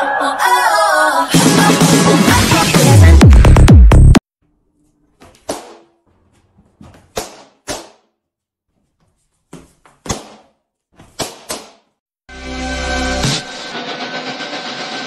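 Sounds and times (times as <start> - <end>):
balloons popping: 7.0 - 8.2, 10.0 - 12.0.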